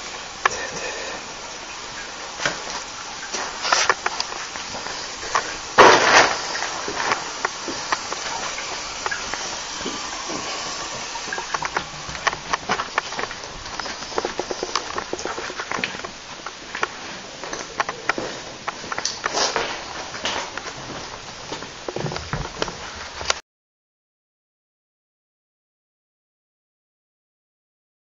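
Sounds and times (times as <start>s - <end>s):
steady hiss: 0.0s - 23.4s
footsteps: 1.7s - 23.4s.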